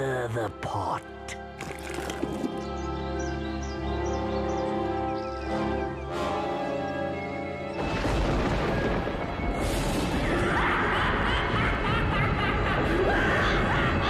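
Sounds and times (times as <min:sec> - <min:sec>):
rumbling thunder crash: 0:07.8 - 0:13.5.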